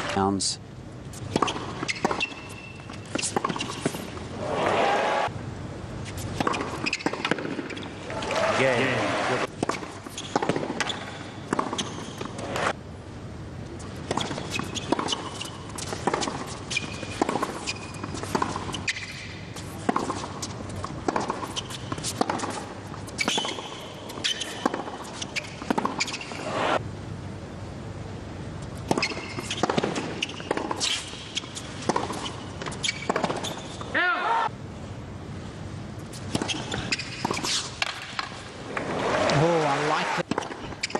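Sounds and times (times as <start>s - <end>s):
ball bouncing on hard court: 1.2s - 4.2s, 6.4s - 8.2s, 9.5s - 12.7s, 14.1s - 26.3s, 28.8s - 33.9s, 40.2s - 40.9s
racket striking tennis ball: 1.2s - 4.8s, 6.2s - 8.4s, 9.4s - 12.8s, 14.0s - 26.7s, 28.8s - 33.9s, 36.1s - 38.9s, 40.2s - 40.9s
crowd and arena noise: 4.3s - 5.4s, 8.0s - 9.5s, 38.6s - 40.4s.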